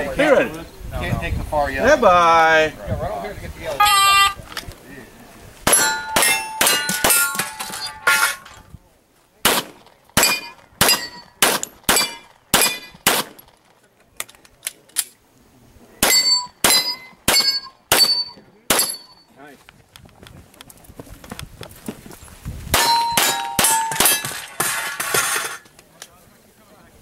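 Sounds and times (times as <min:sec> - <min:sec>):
steel targets ringing: 0:05.7 - 0:08.6, 0:10.2 - 0:13.0, 0:16.0 - 0:19.3, 0:22.8 - 0:25.6
pistol shots: 0:09.4 - 0:13.5, 0:16.0 - 0:19.1.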